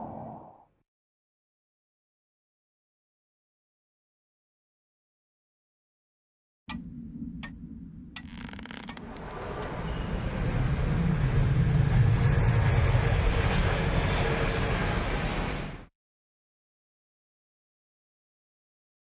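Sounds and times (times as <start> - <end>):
low rumbling noise: 0.0 - 0.6
sharp clicks: 8.2 - 9.8.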